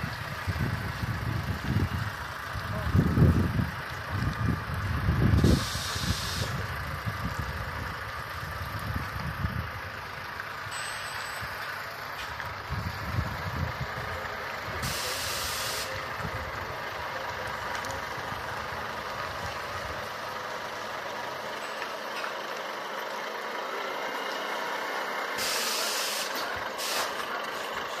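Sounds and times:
truck engine rumbling: 0.0 - 28.0
air-brake hisses: 5.4 - 6.7, 14.8 - 16.0, 25.3 - 28.0.

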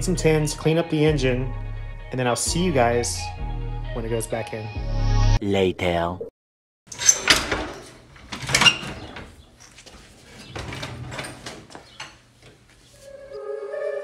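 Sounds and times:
tools clanking on engine: 6.9 - 12.2.

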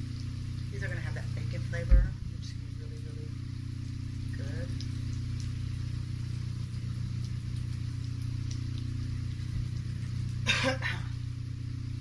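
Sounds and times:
steady low hum: 0.0 - 12.0
woman coughing: 10.4 - 11.2.

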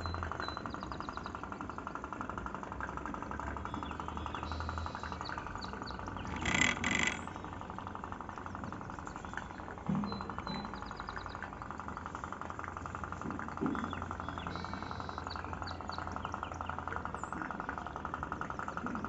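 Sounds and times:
toy steam boat engine popping: 0.0 - 19.0.

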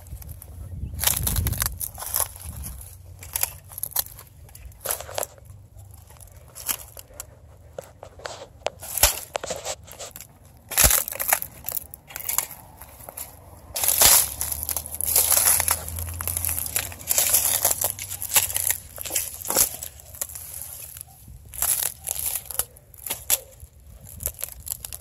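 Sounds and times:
footsteps through dry brush: 0.0 - 25.0
leaves rustling: 0.0 - 25.0
twigs crunching underfoot: 0.0 - 25.0
low steady rumble: 10.2 - 21.8.

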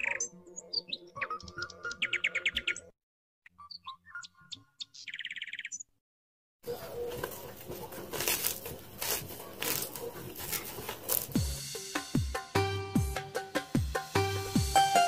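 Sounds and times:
small birds chirping and trilling: 0.0 - 6.0
crackling rustle of pastry: 7.1 - 11.4.

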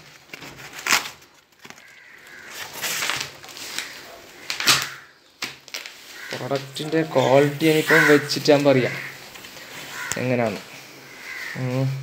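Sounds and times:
cardboard scraping and rustling: 0.0 - 4.9.

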